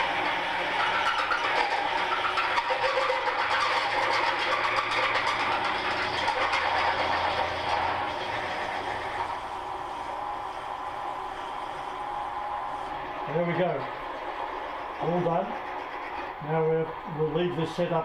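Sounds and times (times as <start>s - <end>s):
drill grinding into steel: 0.0s - 9.6s
machine motor running: 0.0s - 18.0s.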